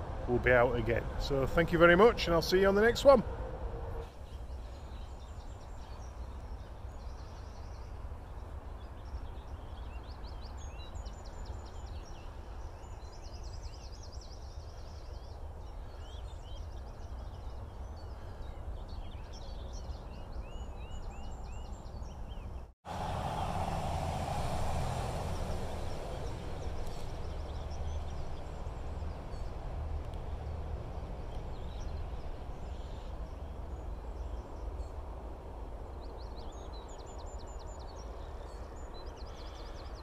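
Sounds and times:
distant motorway traffic rumble: 0.0s - 40.0s
small birds chirping: 4.1s - 22.7s, 25.3s - 35.1s
loud rushing noise: 22.9s - 27.8s.

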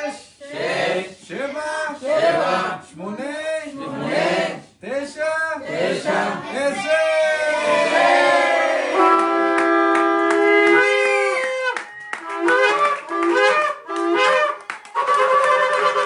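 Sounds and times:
shofar blasts: 8.6s - 16.0s
music: 9.0s - 16.0s.

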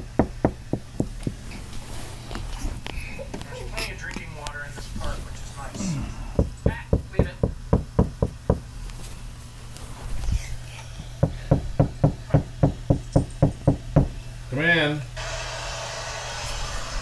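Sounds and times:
rapid knocking: 0.0s - 1.4s, 6.4s - 8.7s, 11.2s - 14.2s.

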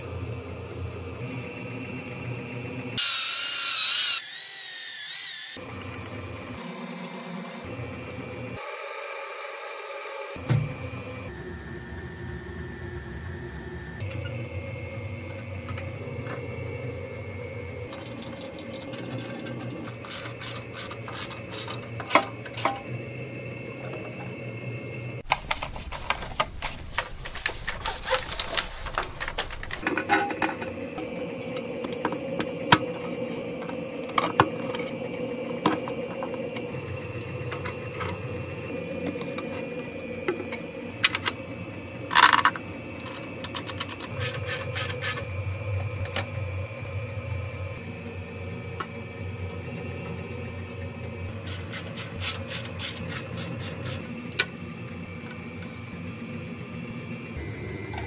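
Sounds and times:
workshop hum: 0.0s - 58.0s
rustling handling noise: 25.2s - 30.4s.

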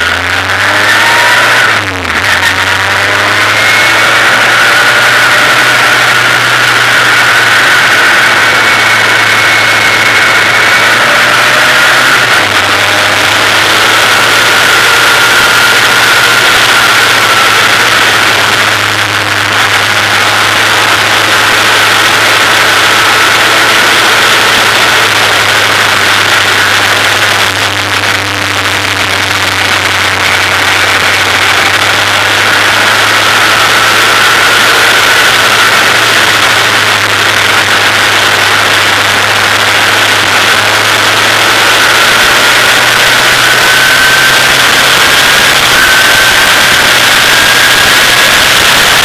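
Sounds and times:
race car engine at speed: 0.0s - 49.0s
wind and road noise: 0.0s - 49.0s.

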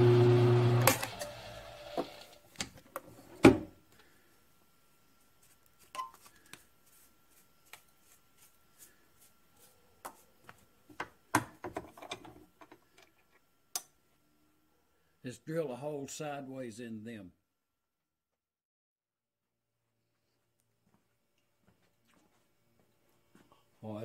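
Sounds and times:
mill-drill motor spinning down: 0.0s - 2.4s.

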